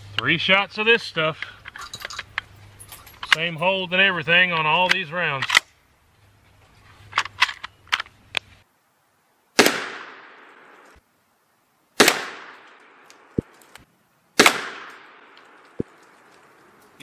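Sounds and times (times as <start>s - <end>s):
rifle shots: 9.6s - 11.0s, 12.0s - 13.5s, 14.4s - 15.9s.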